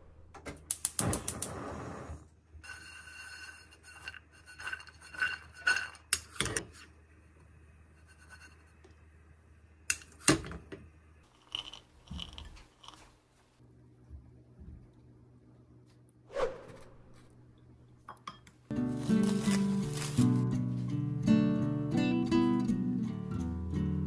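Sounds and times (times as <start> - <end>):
nuts scraping and rattling in pan: 11.3 - 13.0.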